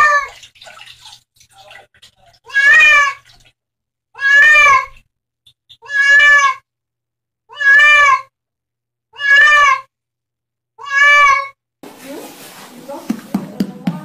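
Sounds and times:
cat meowing in distress: 4.2s - 5.0s, 5.8s - 6.6s, 7.5s - 8.3s, 9.1s - 9.9s, 10.8s - 11.6s.

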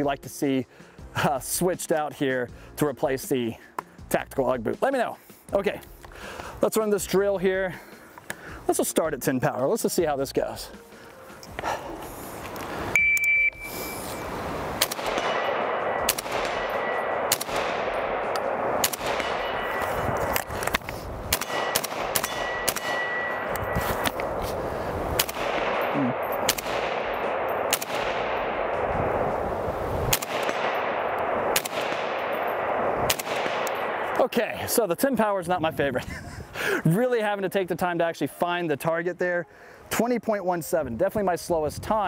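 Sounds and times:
shot timer beep: 13.0s - 14.2s
rifle shots: 14.7s - 24.4s, 25.0s - 34.2s
steel targets ringing: 15.0s - 20.4s, 21.4s - 24.0s.

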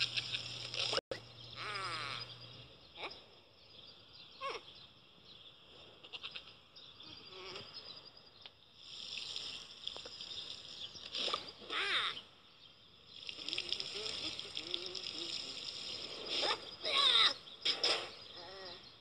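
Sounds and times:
high wavering bleat-like voice: 1.6s - 2.3s, 7.2s - 7.8s, 11.6s - 12.2s, 16.4s - 17.4s.

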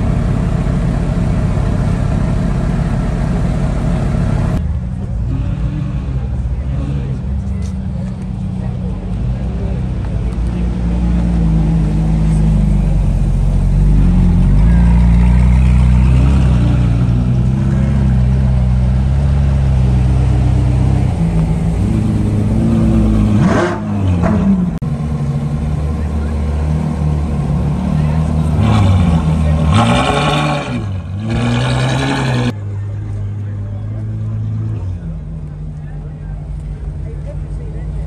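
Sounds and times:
car engines idling: 0.0s - 38.0s
engine revving: 10.3s - 32.6s.

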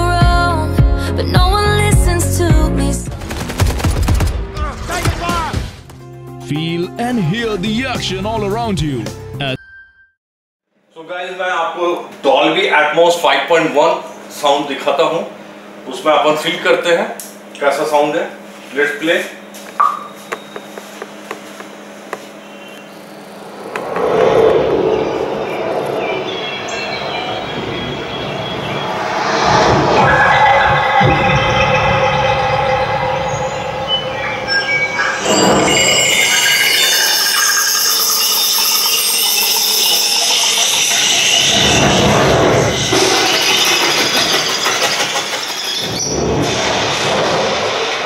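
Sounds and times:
rushing sound with low rumble: 23.3s - 36.0s
high bright tones: 28.6s - 45.9s.

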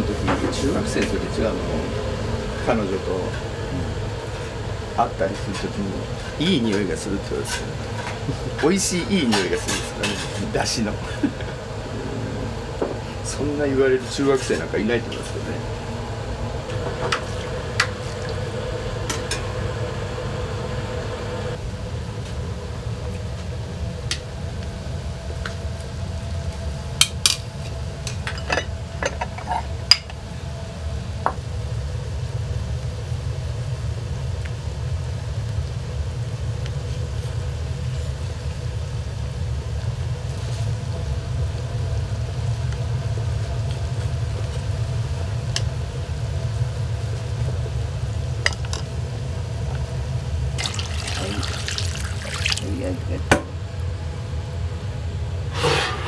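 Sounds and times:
steady low rumble: 0.0s - 27.0s.

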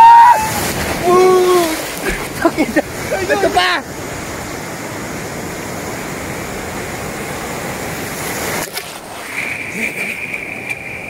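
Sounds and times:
sea surf rushing: 0.0s - 11.0s.

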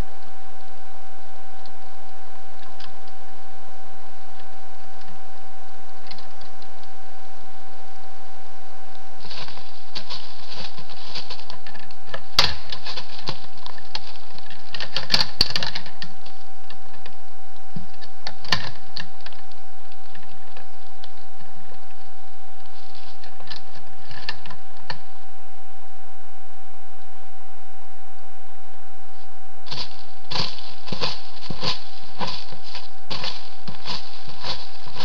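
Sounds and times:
electronic whine and hiss: 0.0s - 35.0s
clicking and crackling of branch: 6.0s - 6.9s, 8.9s - 22.0s, 22.6s - 25.0s, 29.7s - 35.0s.

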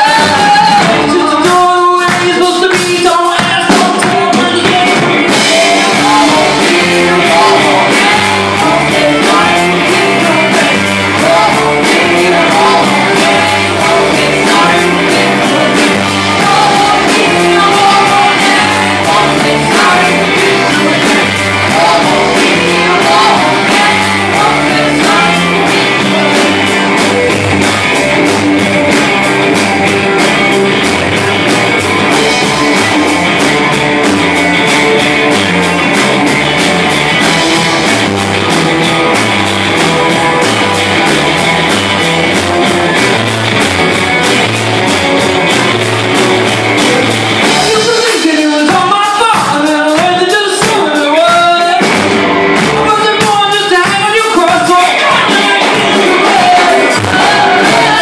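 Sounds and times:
person singing: 0.0s - 28.1s, 46.7s - 52.0s, 52.8s - 58.0s
bass guitar: 0.0s - 58.0s
drum kit: 0.0s - 58.0s
electric guitars: 0.0s - 58.0s.

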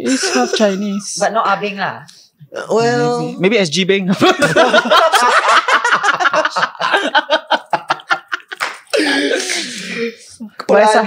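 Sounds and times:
people laughing: 0.0s - 0.8s, 4.1s - 10.1s.

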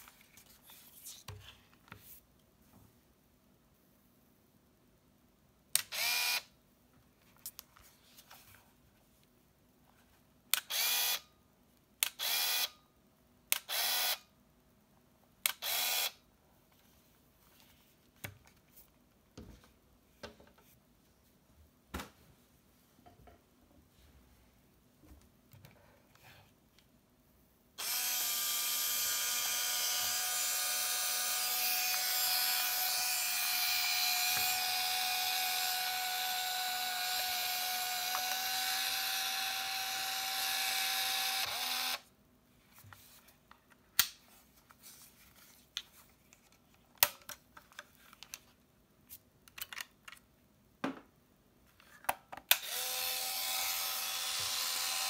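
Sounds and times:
film-transport motor whirring: 27.8s - 42.0s.

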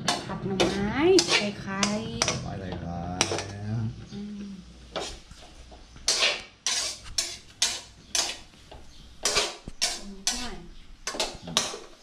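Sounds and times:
metal spatula scraping a wok: 0.0s - 2.4s, 4.9s - 12.0s.

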